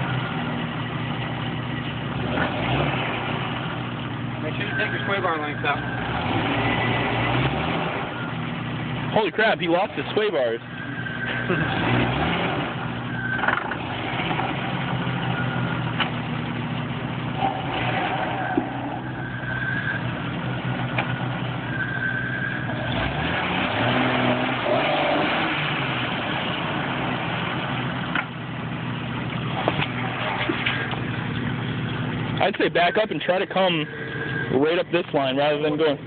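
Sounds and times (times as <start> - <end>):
tires spinning in loose soil: 0.0 - 36.0
engine revving: 2.1 - 16.2, 17.3 - 28.3.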